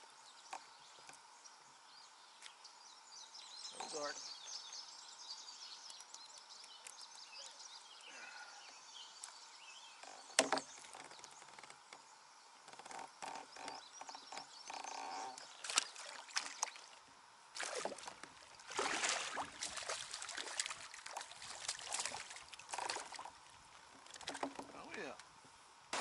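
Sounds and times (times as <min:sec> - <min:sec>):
water dripping: 0:17.6 - 0:24.3
paddle strokes splashing: 0:17.6 - 0:24.9.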